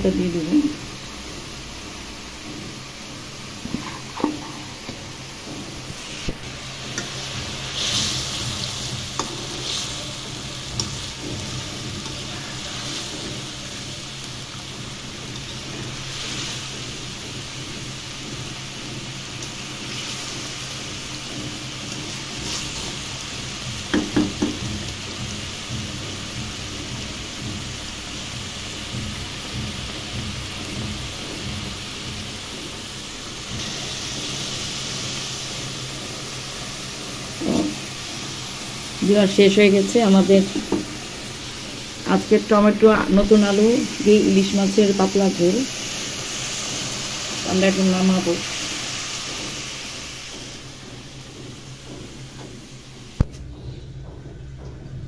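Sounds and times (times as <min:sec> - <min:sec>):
curry simmering and sizzling: 0:00.0 - 0:55.0
utensil knocking against pan: 0:23.8 - 0:26.6, 0:37.4 - 0:37.9, 0:40.4 - 0:41.0.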